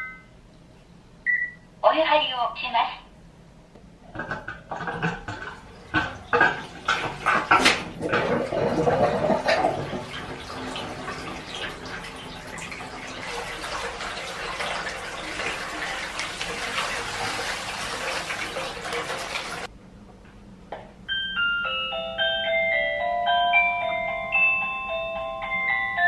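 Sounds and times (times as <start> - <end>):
water pouring into a bathtub: 4.7 - 19.7.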